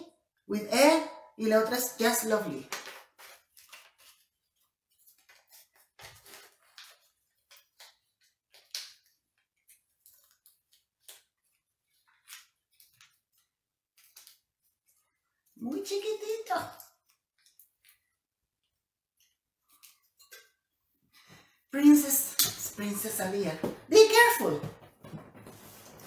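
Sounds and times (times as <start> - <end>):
paper crinkling and rustling: 2.6 - 15.4, 25.0 - 26.0.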